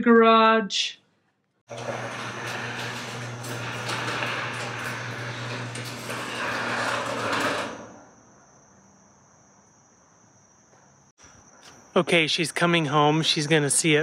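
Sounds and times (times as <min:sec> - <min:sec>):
garage door opener motor hum: 0:01.7 - 0:08.1
garage door rattling: 0:01.7 - 0:08.1
crickets trilling: 0:07.8 - 0:14.0.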